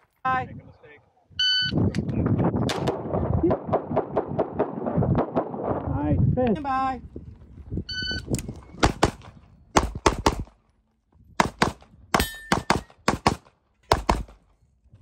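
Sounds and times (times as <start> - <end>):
pistol shots: 11.4 - 14.4.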